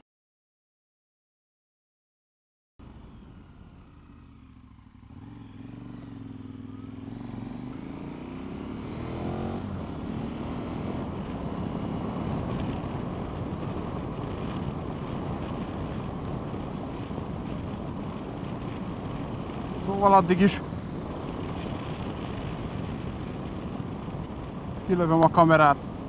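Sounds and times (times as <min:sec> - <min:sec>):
motorcycle engine accelerating: 0:02.8 - 0:26.0
wind rush on microphone: 0:08.5 - 0:26.0.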